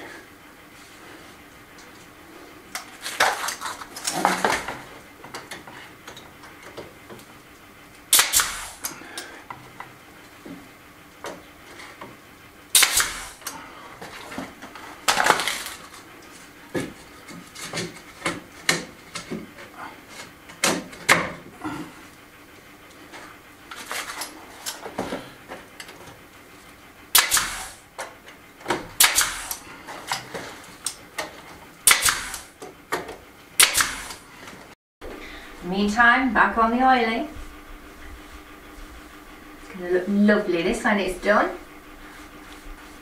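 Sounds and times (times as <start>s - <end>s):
nail gun firing: 8.1s - 8.9s, 12.7s - 13.4s, 27.1s - 27.8s, 29.0s - 29.6s, 31.8s - 32.5s, 33.6s - 34.2s.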